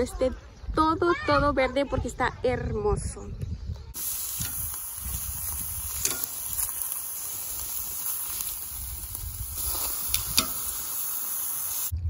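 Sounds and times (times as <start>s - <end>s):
meat and vegetables sizzling on grill: 4.0s - 12.0s.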